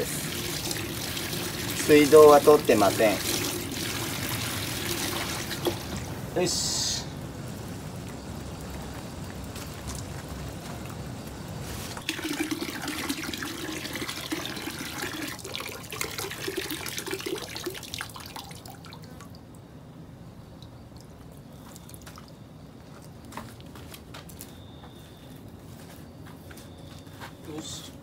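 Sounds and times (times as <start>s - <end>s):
hose water running in tub: 0.0s - 6.2s, 11.8s - 18.8s
water stream splashing: 0.0s - 6.5s, 7.4s - 19.3s.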